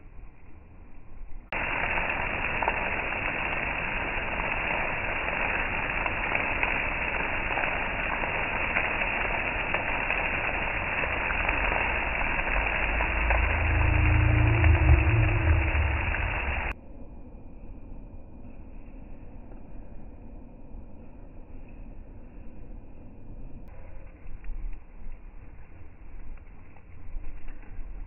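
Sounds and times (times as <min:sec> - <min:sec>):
heavy rain hissing: 0:01.5 - 0:16.8.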